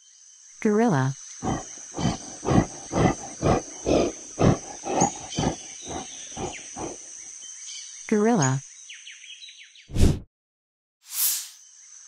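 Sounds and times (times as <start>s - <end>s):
gorilla rhythmic calls: 1.4s - 7.0s.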